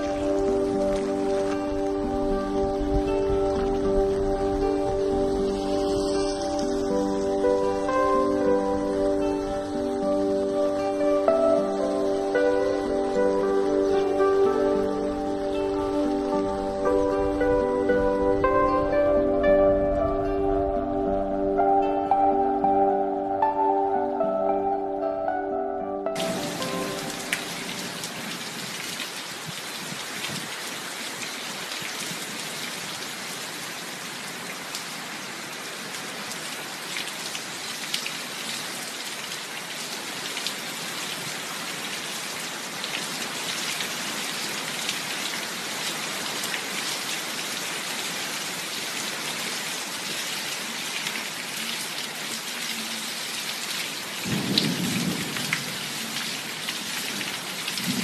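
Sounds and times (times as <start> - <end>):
heavy rain pouring: 0.0 - 24.2, 26.1 - 58.0.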